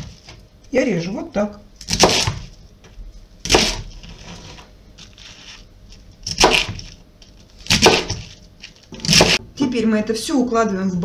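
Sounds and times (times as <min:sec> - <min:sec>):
knife cutting cabbage: 0:01.8 - 0:02.5, 0:03.4 - 0:09.4.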